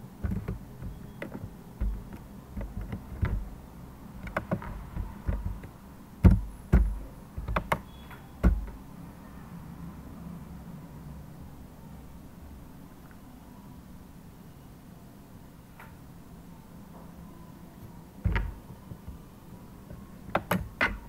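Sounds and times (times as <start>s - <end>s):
dull knocks: 0.2s - 3.6s, 4.2s - 7.8s, 8.4s - 8.8s
keyboard and mouse clicking: 0.2s - 3.6s, 4.2s - 8.8s.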